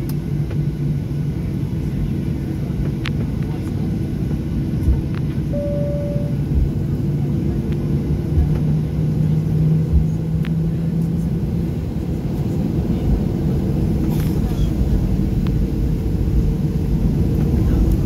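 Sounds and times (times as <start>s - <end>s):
jet engine cabin rumble: 0.0s - 18.0s
short beep: 5.5s - 6.4s.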